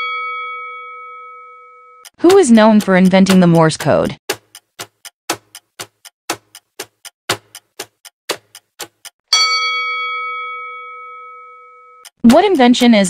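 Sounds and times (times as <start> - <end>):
bell ding: 0.0 - 2.0, 9.3 - 12.0
clock ticking: 2.0 - 9.2, 12.0 - 13.0.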